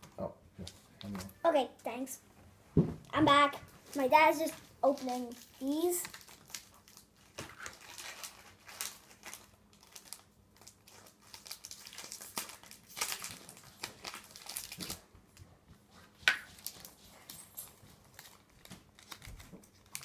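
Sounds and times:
foil wrappers crinkling: 3.9 - 15.2, 16.0 - 20.0.

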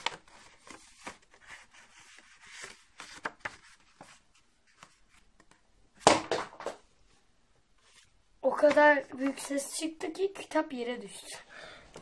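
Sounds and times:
paper rustling and crinkling: 0.0 - 5.6.

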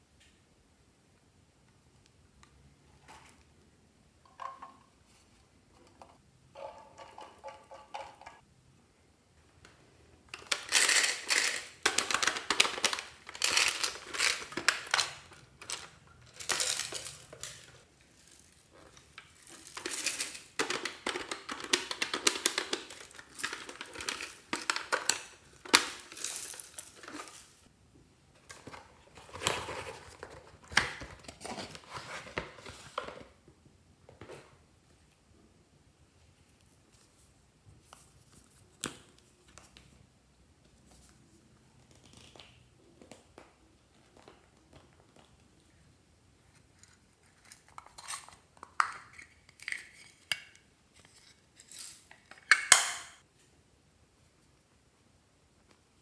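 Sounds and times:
plastic packaging crinkling: 10.4 - 27.7.

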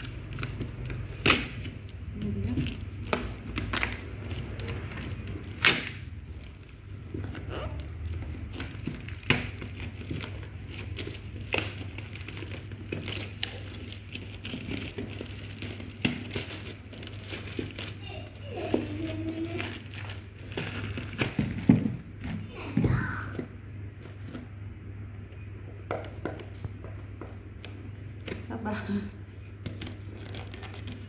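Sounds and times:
plastic bag crinkling and tearing: 0.0 - 22.0, 29.7 - 31.0.

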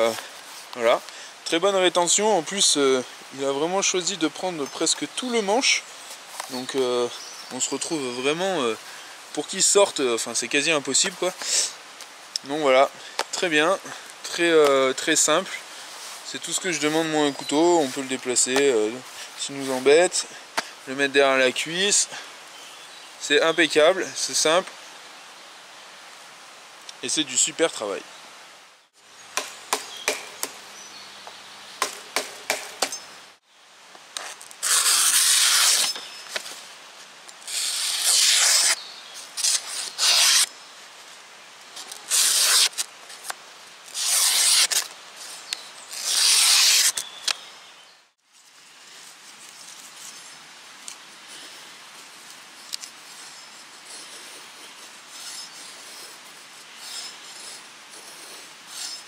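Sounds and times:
knife scraping wooden stick: 34.2 - 36.5, 37.5 - 38.8, 39.4 - 40.5, 41.8 - 43.3, 43.9 - 47.1, 52.7 - 59.0
knife slicing paper: 34.2 - 36.5, 37.5 - 38.8, 39.4 - 40.5, 41.8 - 43.3, 43.9 - 47.1.

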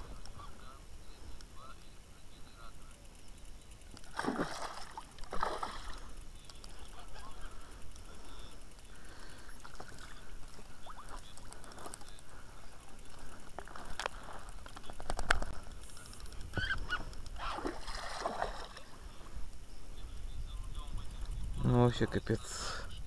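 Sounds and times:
water splashing: 4.0 - 6.1, 17.4 - 19.0.

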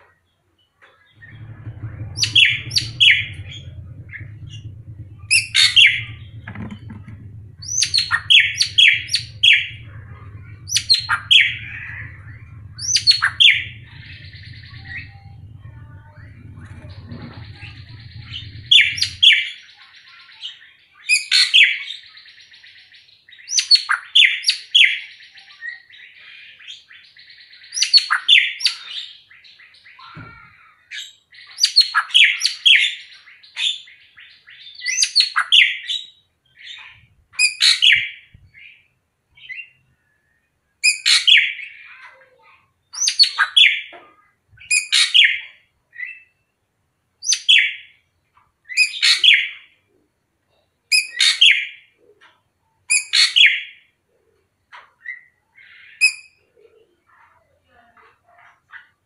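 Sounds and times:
bird singing sharp notes: 1.2 - 19.6.

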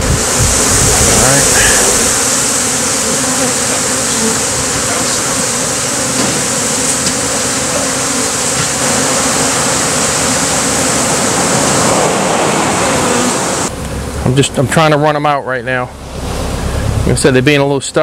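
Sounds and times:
honey bees buzzing: 0.0 - 18.0.

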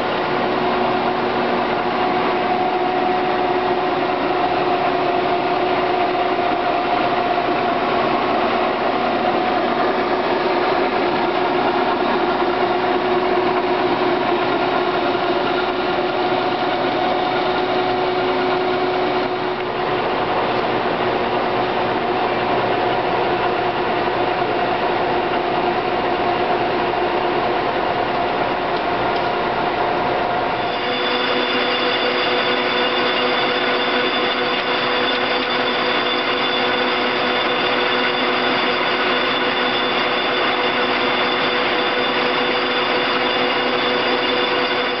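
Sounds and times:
lathe mechanical whine: 0.0 - 45.0
lathe rattle: 30.5 - 45.0.

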